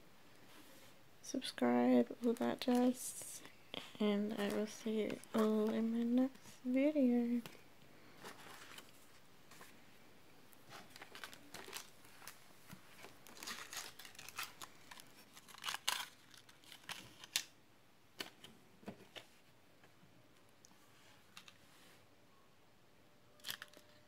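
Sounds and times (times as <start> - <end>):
paper sheets rustling on table: 8.1 - 9.8.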